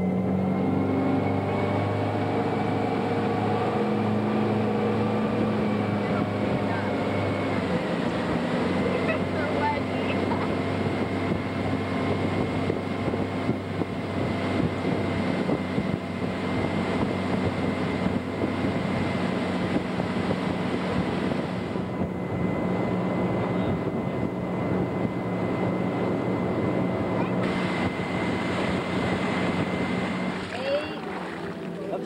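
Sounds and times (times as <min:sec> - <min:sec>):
motorboat engine running: 0:00.0 - 0:32.0
wind noise on microphone: 0:04.0 - 0:31.6.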